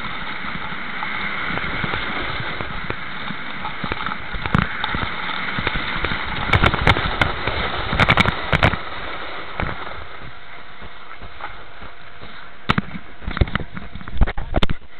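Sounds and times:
skis sliding over snow: 0.0 - 14.9.

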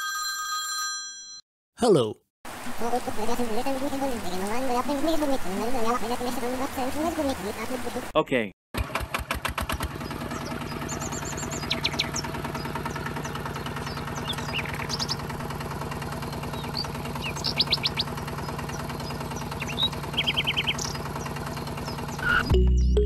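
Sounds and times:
birds chirping in trills: 9.8 - 22.5.

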